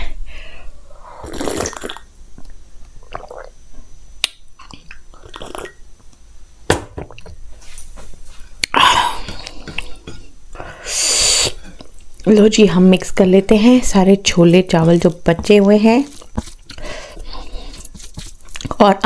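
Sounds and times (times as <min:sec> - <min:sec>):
sipping and swallowing: 0:01.2 - 0:02.1, 0:03.0 - 0:03.6, 0:04.6 - 0:05.8.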